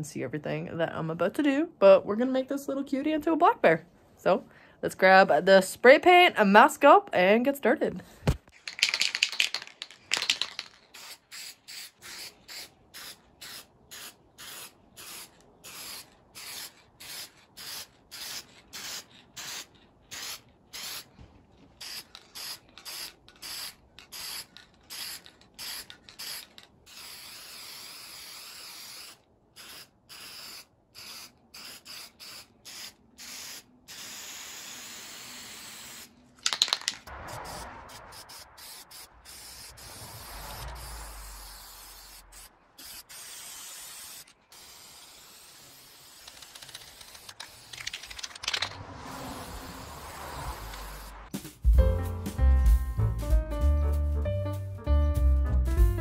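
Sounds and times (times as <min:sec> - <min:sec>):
spray paint can hissing: 0:08.5 - 0:21.2, 0:21.8 - 0:51.6.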